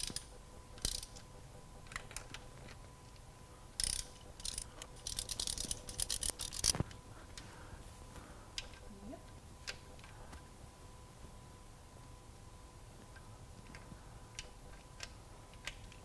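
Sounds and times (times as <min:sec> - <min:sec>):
ratchet wrench clicking: 0:00.0 - 0:01.2, 0:03.8 - 0:06.8.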